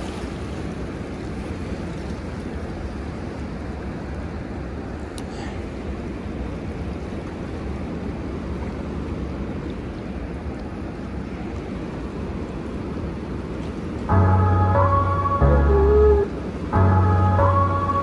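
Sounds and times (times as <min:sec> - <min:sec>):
fast turbulent river current: 0:00.0 - 0:18.0
background music: 0:14.1 - 0:18.0.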